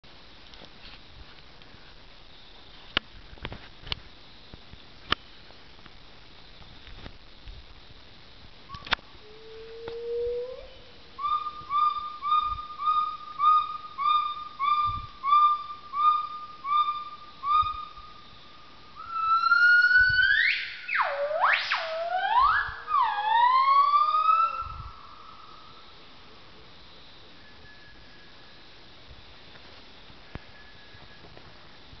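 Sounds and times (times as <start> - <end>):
gibbon hooting and whooping: 9.3 - 18.0, 21.0 - 25.0.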